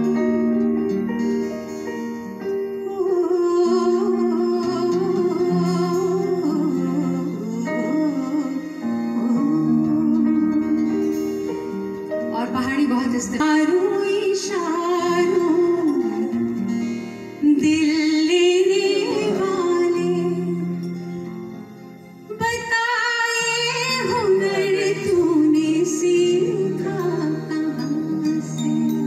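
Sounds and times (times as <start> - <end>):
strings: 0.0 - 29.0
woman singing into microphone: 2.8 - 11.6, 12.2 - 21.0, 22.3 - 29.0.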